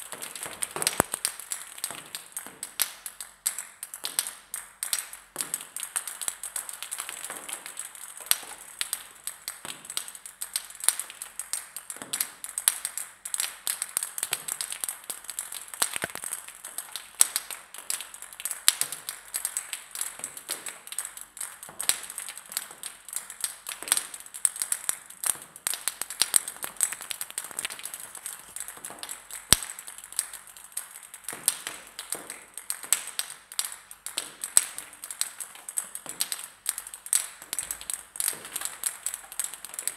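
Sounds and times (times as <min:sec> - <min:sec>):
ping pong balls bouncing on floor: 0:15.8 - 0:16.2.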